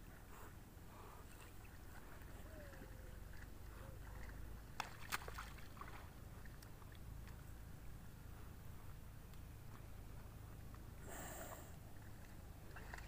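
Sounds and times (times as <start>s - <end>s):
water sloshing: 1.0s - 7.8s, 11.8s - 13.0s.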